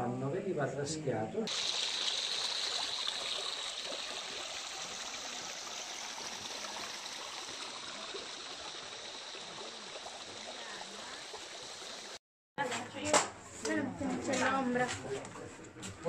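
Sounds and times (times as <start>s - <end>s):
stream running over rocks: 1.5s - 12.2s.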